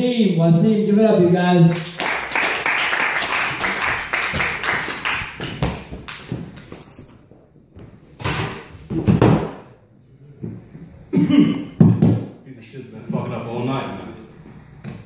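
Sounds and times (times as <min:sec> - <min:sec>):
audience applause: 0:01.7 - 0:05.6.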